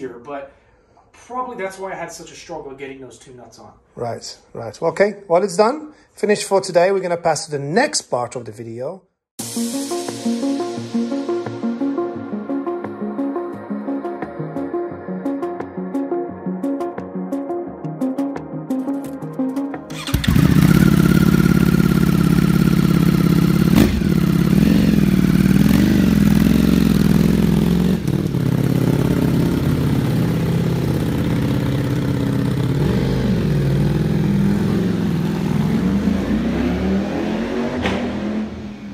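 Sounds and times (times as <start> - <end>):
motorcycle engine revving: 19.9 - 38.9.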